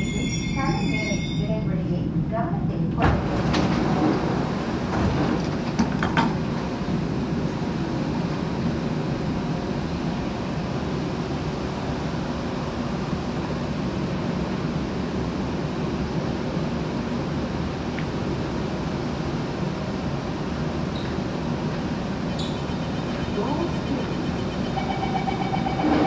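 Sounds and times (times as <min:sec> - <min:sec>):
ventilation hum: 0:01.5 - 0:26.0.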